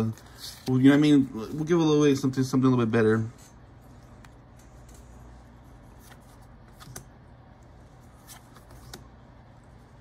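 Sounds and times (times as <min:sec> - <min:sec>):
low steady hum: 0:00.0 - 0:10.0
cards sliding and flicking: 0:04.1 - 0:09.2.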